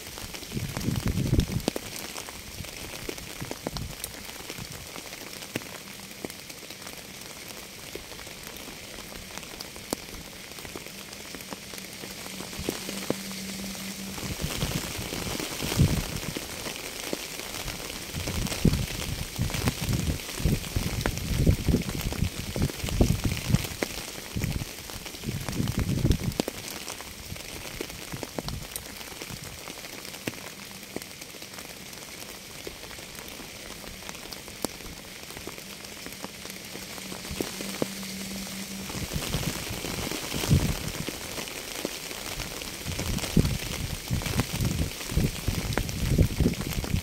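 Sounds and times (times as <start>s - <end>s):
rain hissing on a surface: 0.0s - 47.0s.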